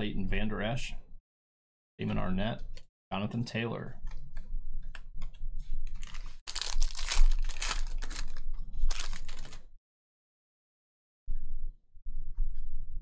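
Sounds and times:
foil wrapper tearing and crinkling: 0:06.0 - 0:09.7.

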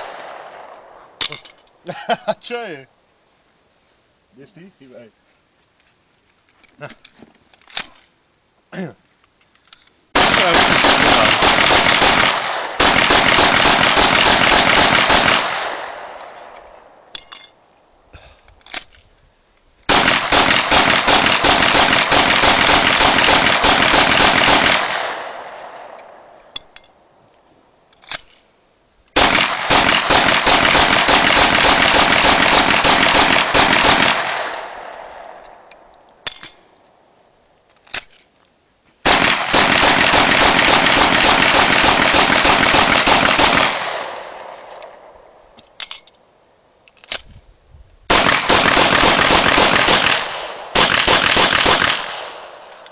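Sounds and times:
pistol rapid fire: 0:10.2 - 0:16.2, 0:19.9 - 0:26.0, 0:29.2 - 0:35.3, 0:39.1 - 0:44.5, 0:48.1 - 0:52.7
single gunshots: 0:10.2 - 0:16.5, 0:19.9 - 0:26.0, 0:29.2 - 0:35.4, 0:39.1 - 0:44.8, 0:48.1 - 0:52.6.

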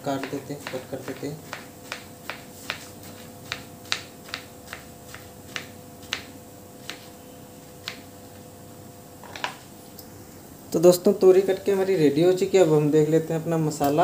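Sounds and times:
knife tapping cutting board: 0:00.1 - 0:07.1.

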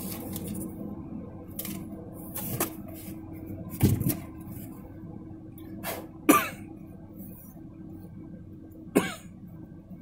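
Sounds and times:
cardboard and paper rustling: 0:00.0 - 0:00.7, 0:01.6 - 0:04.6
steady low hum: 0:00.0 - 0:10.0.

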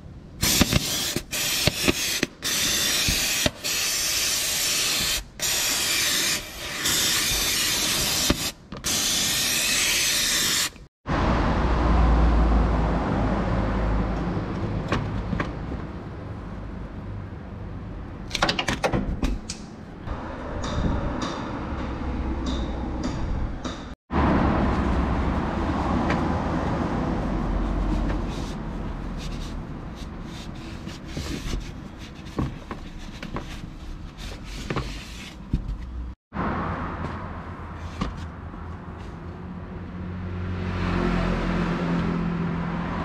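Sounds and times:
aerosol spray can hissing: 0:00.4 - 0:10.8.

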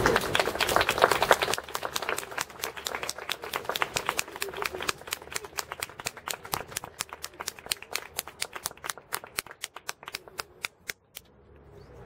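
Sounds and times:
small audience clapping: 0:00.0 - 0:11.0.

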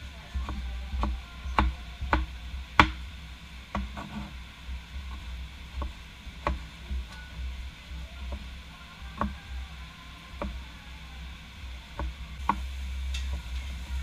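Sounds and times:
knife chopping on wooden board: 0:00.4 - 0:03.0, 0:03.7 - 0:04.3, 0:05.8 - 0:06.7.

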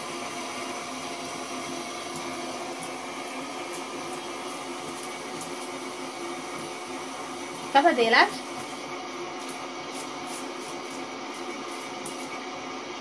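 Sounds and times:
tap water running into shower tray: 0:00.0 - 0:12.5.

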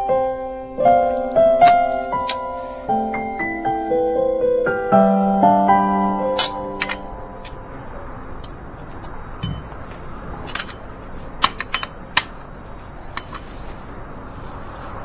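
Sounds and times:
tableware clinking: 0:06.4 - 0:07.6.

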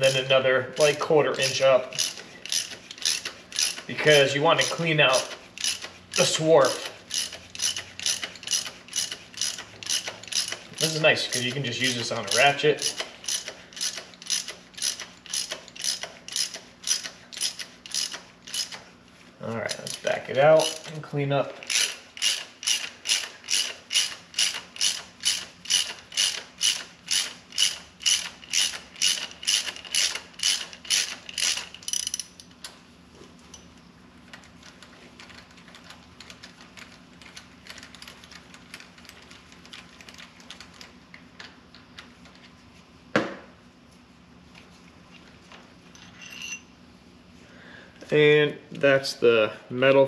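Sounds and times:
socket ratchet clicking: 0:00.8 - 0:03.9, 0:04.6 - 0:18.8, 0:21.6 - 0:32.5.

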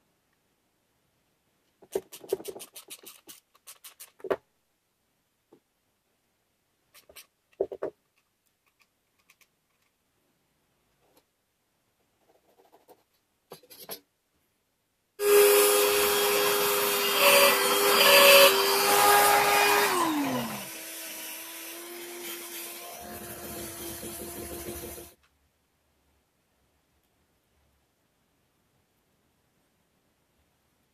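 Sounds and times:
jigsaw sawing plywood: 0:15.2 - 0:25.2.

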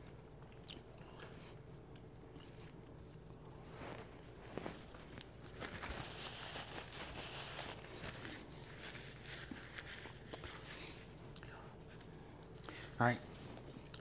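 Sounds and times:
faint chewing: 0:00.0 - 0:06.2, 0:06.9 - 0:14.0
paper napkin rustling: 0:03.6 - 0:11.1.

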